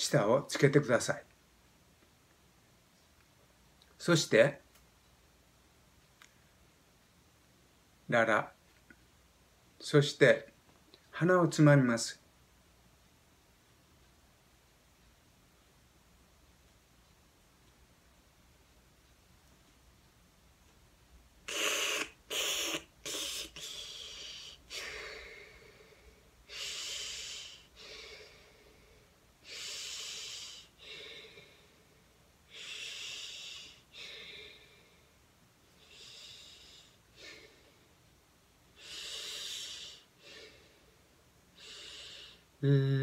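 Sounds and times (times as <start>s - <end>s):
man breathing hissing through mouth: 21.5s - 25.8s, 26.5s - 28.6s, 29.4s - 31.7s, 32.5s - 34.7s, 38.8s - 40.8s, 41.6s - 42.9s.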